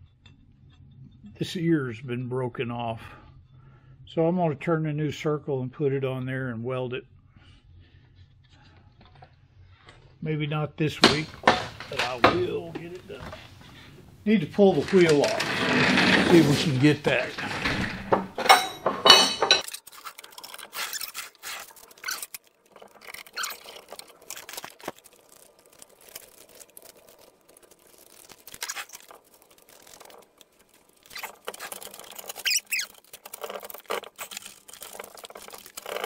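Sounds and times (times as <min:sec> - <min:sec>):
metal clatter: 0:11.0 - 0:13.9, 0:14.5 - 0:36.0
tools scraping: 0:11.0 - 0:36.0.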